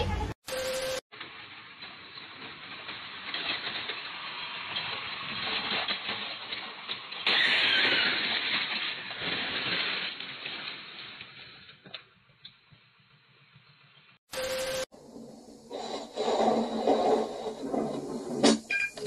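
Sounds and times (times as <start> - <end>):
loud car crash: 7.1 - 11.0.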